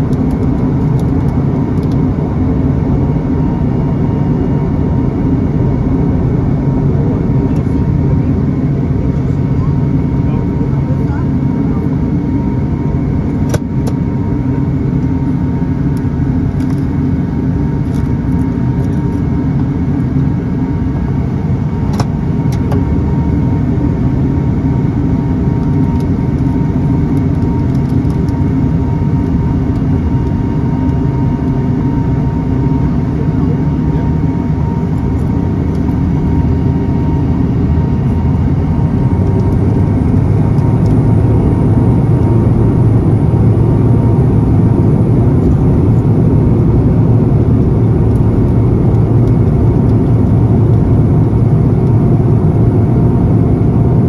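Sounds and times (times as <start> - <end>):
turboprop engine drone: 0.0 - 54.0.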